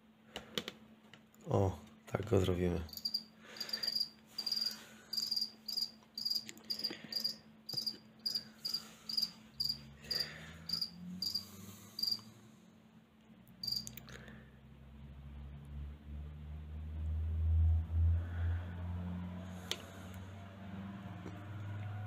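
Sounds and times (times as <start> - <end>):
cricket chirping: 2.9 - 12.2, 13.6 - 13.9.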